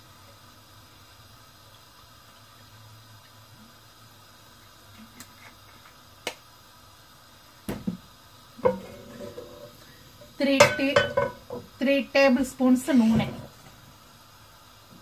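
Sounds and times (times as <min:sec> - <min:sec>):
pot clunking on metal grate: 0:08.6 - 0:09.8, 0:10.5 - 0:11.7.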